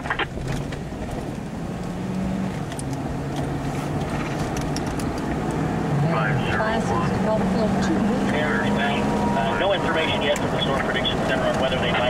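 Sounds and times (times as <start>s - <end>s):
road and engine noise: 0.0s - 12.0s.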